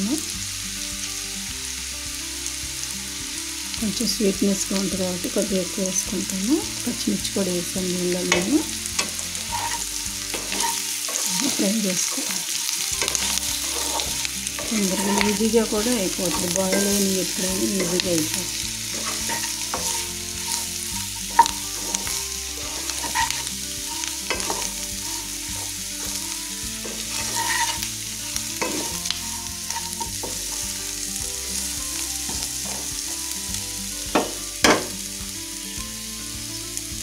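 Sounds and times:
food sizzling in oil: 0:00.0 - 0:37.0
spatula scraping pan: 0:08.2 - 0:33.3
spatula knocking on stove: 0:13.0 - 0:24.7, 0:34.2 - 0:34.9.

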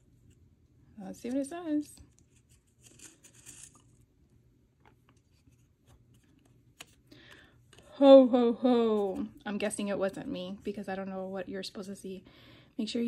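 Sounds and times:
paper tag rustling: 0:01.1 - 0:04.1.

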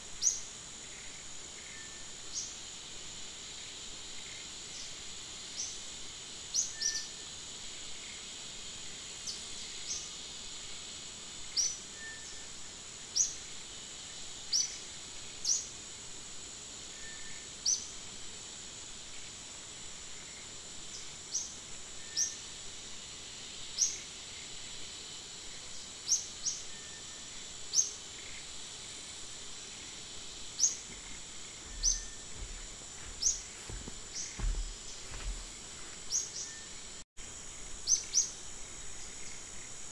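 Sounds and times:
high-pitched insect drone: 0:00.0 - 0:39.9.

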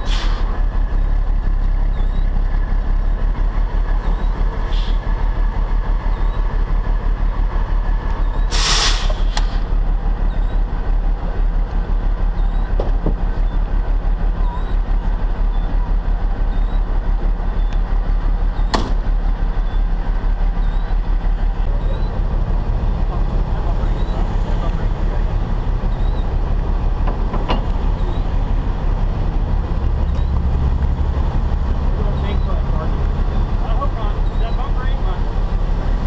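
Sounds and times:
diesel engine rumbling: 0:00.0 - 0:36.0
short hiss: 0:08.5 - 0:09.6.

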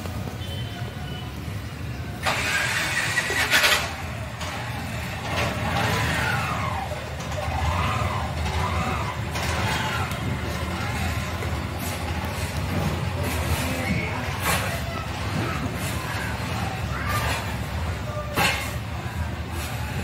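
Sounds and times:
loud hissing burst: 0:02.2 - 0:03.8
engine rumbling and revving: 0:02.2 - 0:20.0.

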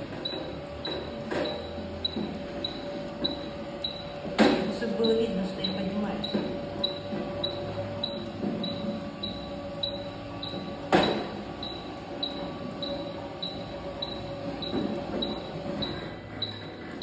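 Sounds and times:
stair lift motor hum: 0:00.0 - 0:17.0
short high warning beeps: 0:05.0 - 0:16.7.

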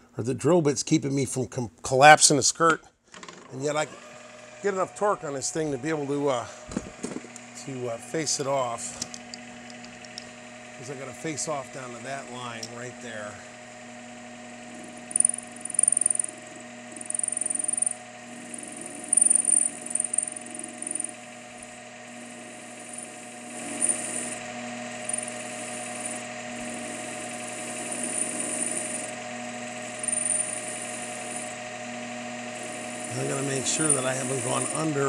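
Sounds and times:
metal lathe humming: 0:03.6 - 0:35.0
high-pitched metal cutting noise: 0:14.6 - 0:35.0.

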